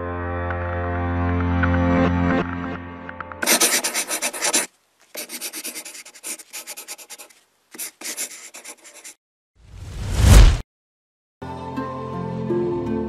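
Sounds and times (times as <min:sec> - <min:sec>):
pen scratching on paper: 0:03.4 - 0:09.2.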